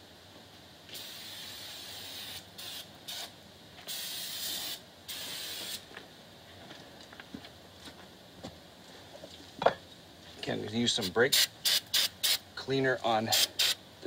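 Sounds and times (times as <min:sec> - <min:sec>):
aerosol spray hissing: 0:00.9 - 0:03.3, 0:03.9 - 0:05.8, 0:11.0 - 0:12.4, 0:13.3 - 0:13.8.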